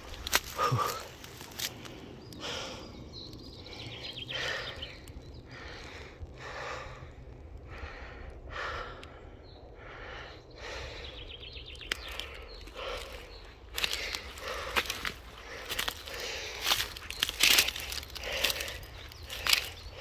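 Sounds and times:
footsteps through undergrowth: 0.0 - 2.8, 11.8 - 20.0
heavy breathing: 0.0 - 20.0.

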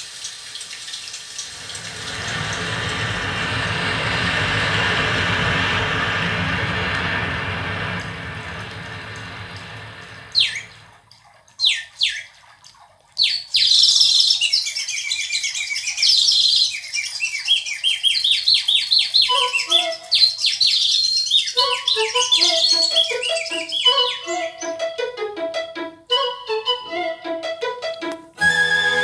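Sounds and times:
rapid bird chirps: 13.2 - 24.3
recorded bird calls: 13.2 - 24.8
low melodic instrument notes: 21.6 - 29.0.

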